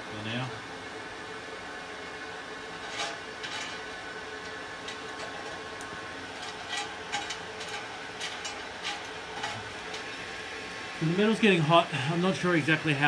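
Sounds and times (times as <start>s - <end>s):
steady whirring hum: 0.0s - 13.0s
metal clinks and scrapes: 2.8s - 4.0s, 4.8s - 5.7s, 6.3s - 10.2s.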